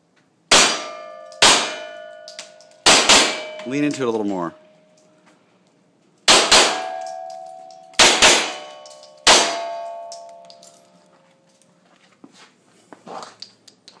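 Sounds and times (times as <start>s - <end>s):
pistol shots: 0.5s - 2.0s, 2.8s - 3.6s, 6.3s - 7.1s, 8.0s - 9.9s
steel targets ringing: 0.5s - 5.0s, 6.3s - 11.1s.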